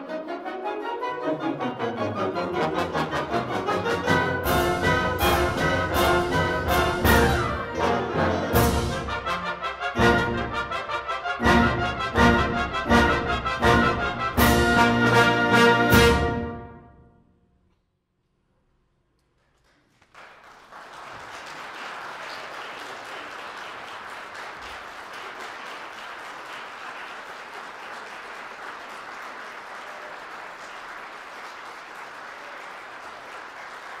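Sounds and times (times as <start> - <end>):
audience applause: 19.6 - 34.0.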